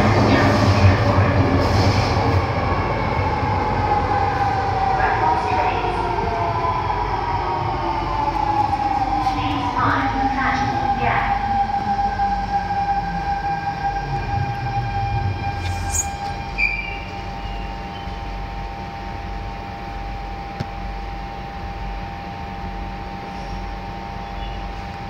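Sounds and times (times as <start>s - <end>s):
train equipment hum: 0.0s - 25.0s
train running rumble: 0.0s - 25.0s
brake squeal: 15.6s - 18.2s.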